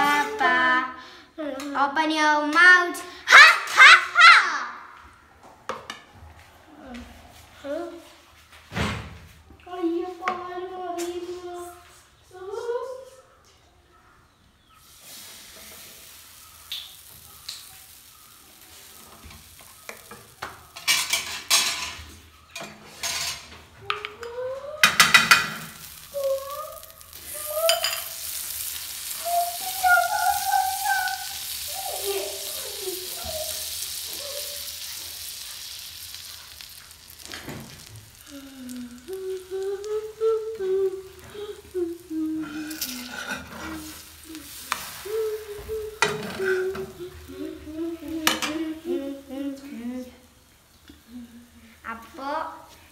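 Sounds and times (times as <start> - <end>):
batter sizzling on a hot pan: 14.6 - 23.6, 24.3 - 52.9.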